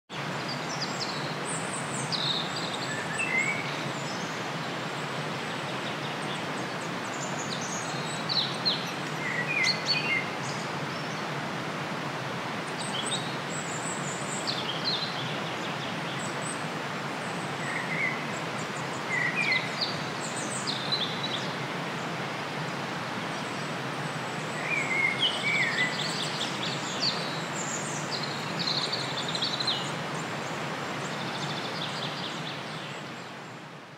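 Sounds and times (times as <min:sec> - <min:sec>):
small birds chirping: 0:00.1 - 0:11.3, 0:17.2 - 0:21.6, 0:23.3 - 0:33.5
steady background hiss: 0:00.2 - 0:33.9.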